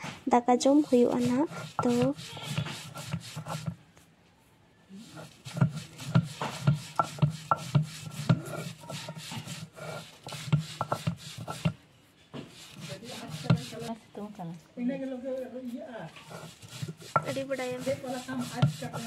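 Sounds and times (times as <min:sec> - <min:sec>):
stone grinding on stone: 0:00.6 - 0:03.8, 0:05.0 - 0:11.8, 0:12.4 - 0:14.0, 0:16.1 - 0:19.0.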